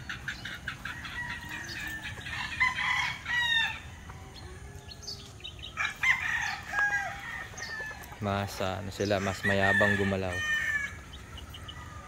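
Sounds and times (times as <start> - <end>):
chickens clucking: 0.0 - 12.0
rooster crowing: 0.9 - 4.6, 5.8 - 8.1, 9.1 - 11.0.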